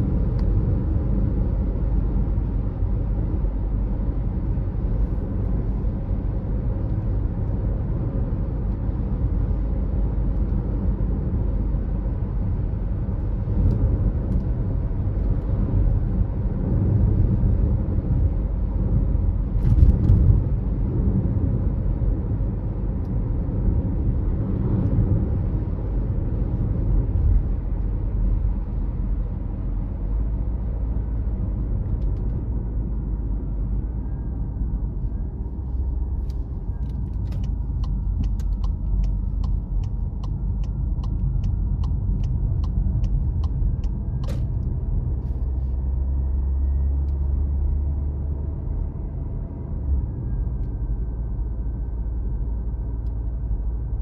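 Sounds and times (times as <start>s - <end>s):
car engine and road noise: 0.0s - 54.0s.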